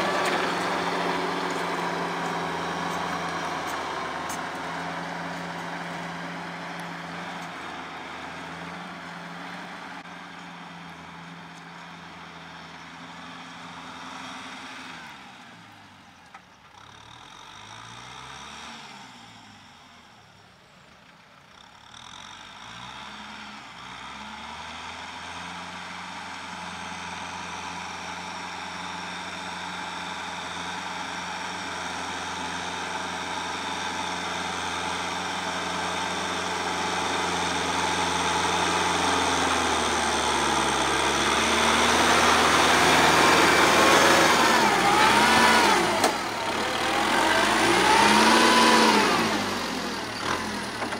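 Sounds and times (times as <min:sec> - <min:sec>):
tractor diesel engine running: 0:00.0 - 0:18.4, 0:19.5 - 0:50.9.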